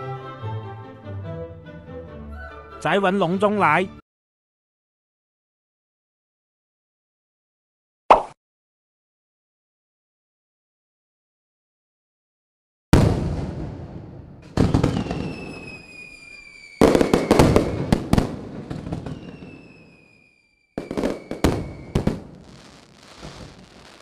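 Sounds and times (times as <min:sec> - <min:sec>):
firework bangs: 0:12.9 - 0:24.0
firework crackling: 0:13.1 - 0:24.0
firework whistles falling in pitch: 0:14.7 - 0:24.0.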